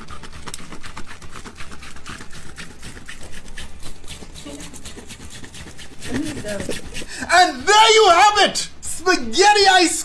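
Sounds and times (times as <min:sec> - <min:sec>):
box grater scraping: 0:00.0 - 0:07.3.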